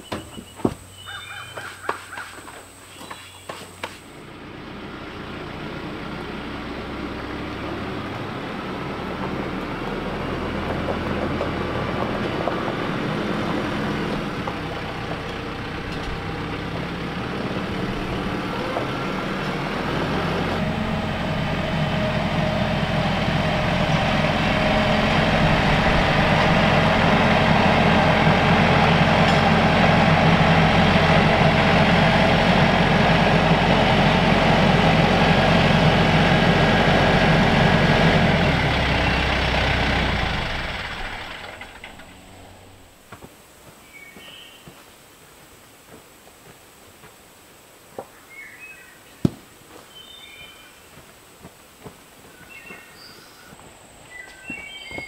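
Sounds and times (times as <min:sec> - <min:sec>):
tractor diesel engine running: 0:03.7 - 0:43.8.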